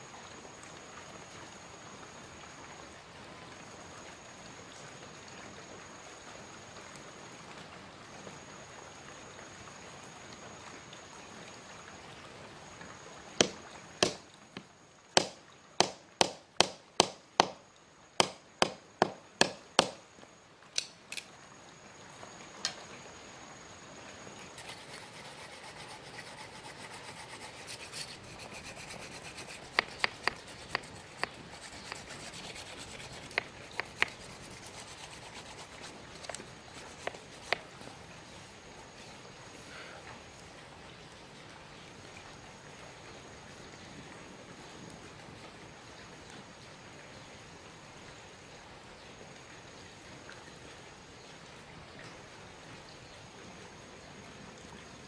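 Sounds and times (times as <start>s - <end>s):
knife chopping into bamboo: 13.4s - 14.2s, 15.2s - 17.6s, 18.2s - 20.0s, 29.3s - 34.6s, 36.9s - 37.7s
blade scraping bamboo sticks: 24.6s - 37.7s.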